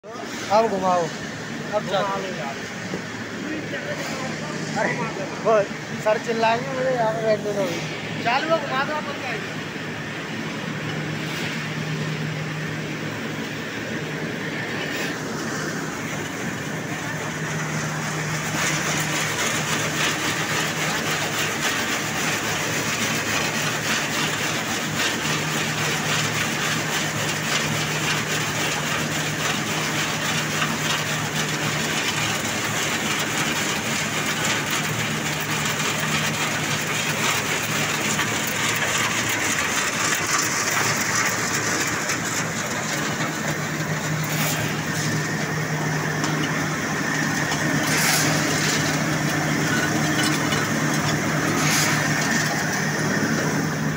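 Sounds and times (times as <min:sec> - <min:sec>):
motor hum: 0:00.0 - 0:53.9
dried roots rattling on mesh screen: 0:17.4 - 0:53.9.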